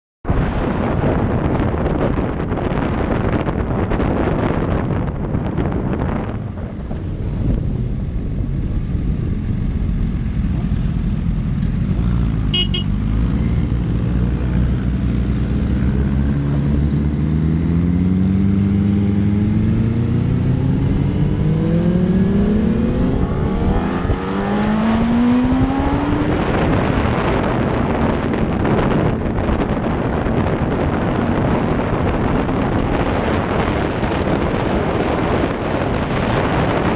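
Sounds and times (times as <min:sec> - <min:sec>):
wind rushing over helmet: 0:00.3 - 0:12.8, 0:13.5 - 0:36.9
motorcycle engine accelerating: 0:00.3 - 0:36.9
brief high beep: 0:12.6 - 0:12.9.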